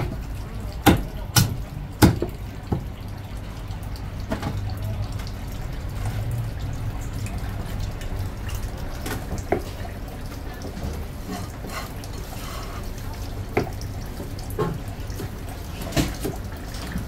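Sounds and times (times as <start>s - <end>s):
kitchen hum and hiss: 0.0s - 17.0s.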